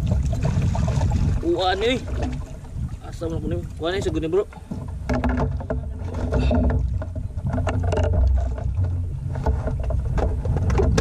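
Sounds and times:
boat engine rumble: 0:00.0 - 0:11.0
knocks and clicks: 0:04.0 - 0:11.0.

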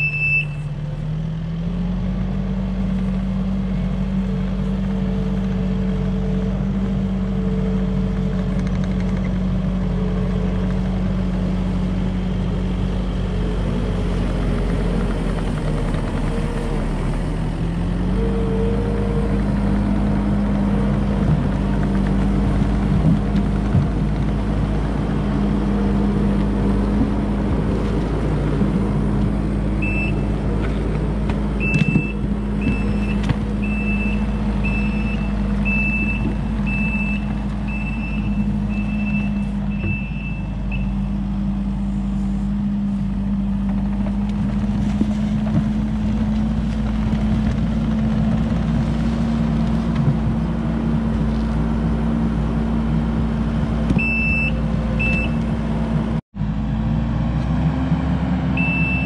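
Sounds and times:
reversing alarm beeping: 0:00.0 - 0:00.7, 0:29.8 - 0:30.3, 0:31.6 - 0:41.1, 0:54.0 - 0:55.4, 0:58.6 - 0:59.0
diesel engine running: 0:00.0 - 0:59.0.

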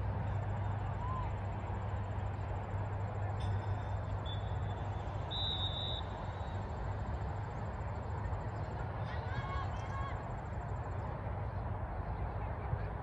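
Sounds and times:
thin high whistle tone: 0:03.4 - 0:06.6.

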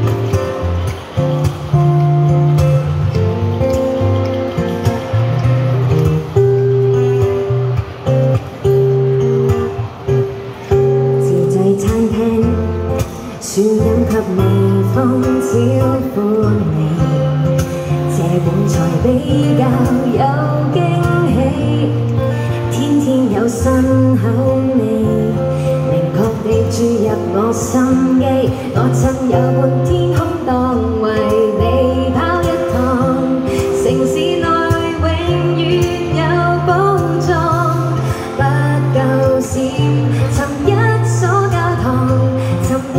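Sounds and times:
acoustic guitar: 0:00.0 - 0:42.9
woman singing pop song: 0:10.7 - 0:42.9.

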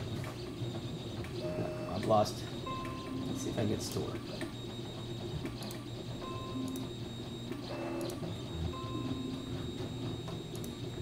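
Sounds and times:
steady low hum: 0:00.0 - 0:11.0
computer system chimes: 0:01.4 - 0:04.1, 0:06.2 - 0:11.0.

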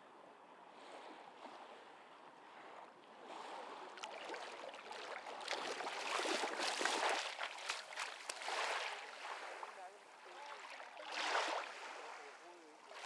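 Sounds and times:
water splashing around wading legs: 0:03.4 - 0:13.0.

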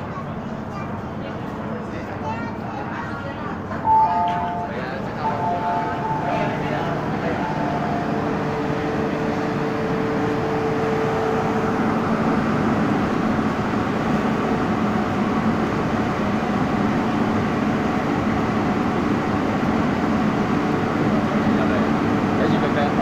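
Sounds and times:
train humming and hissing: 0:00.0 - 0:23.0
passengers moving: 0:03.1 - 0:14.3.

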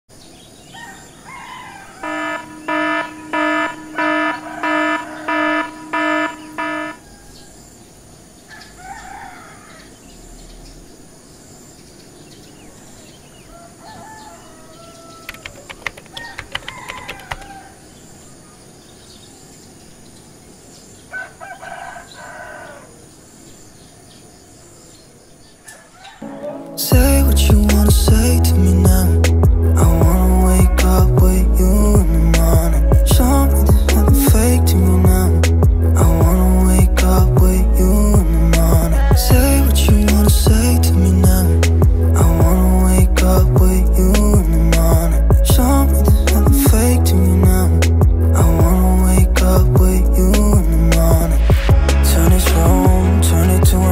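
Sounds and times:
alarm beeping: 0:02.0 - 0:07.0.

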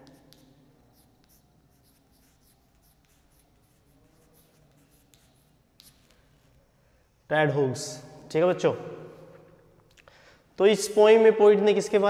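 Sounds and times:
chalk writing on blackboard: 0:00.0 - 0:06.6.

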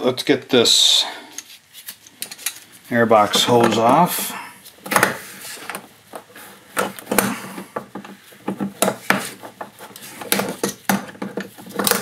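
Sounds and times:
rubber hose clicking and knocking: 0:04.8 - 0:12.0.

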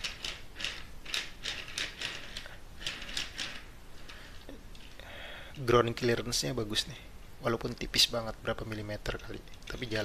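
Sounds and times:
toy car wheels rolling: 0:00.0 - 0:04.8.

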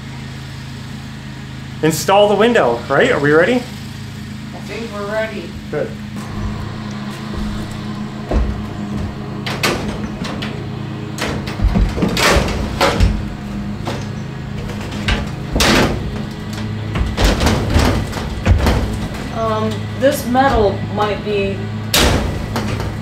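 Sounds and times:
lawn mower droning: 0:00.0 - 0:23.0
metal window frame knocking: 0:06.4 - 0:19.3.

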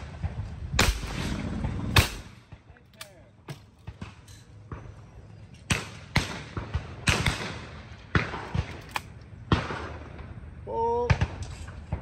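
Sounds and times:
shotgun shots with echo: 0:00.8 - 0:02.6, 0:05.7 - 0:08.8.

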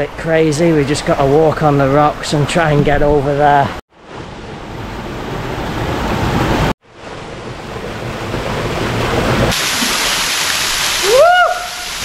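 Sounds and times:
rushing water: 0:00.0 - 0:12.0
small waterfall pouring into pool: 0:09.5 - 0:12.0.

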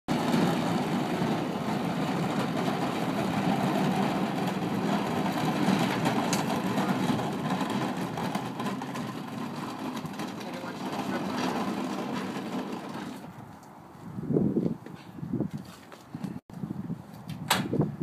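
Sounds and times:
wheels rumbling over asphalt: 0:00.1 - 0:13.8.

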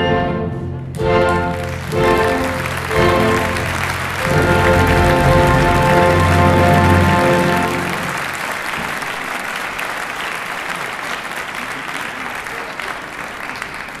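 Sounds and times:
music final held chord: 0:00.0 - 0:08.4
audience applauding: 0:01.0 - 0:14.0.

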